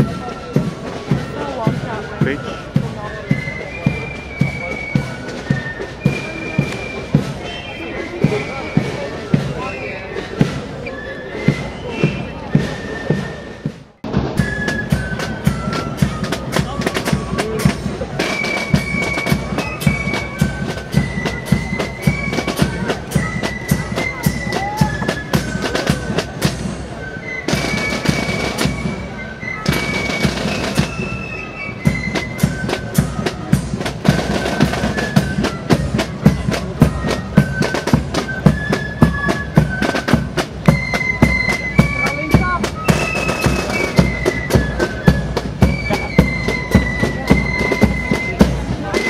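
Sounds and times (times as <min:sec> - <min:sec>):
fife melody of held notes: 0:00.0 - 0:49.0
rapid drumming: 0:11.5 - 0:26.9, 0:27.5 - 0:49.0.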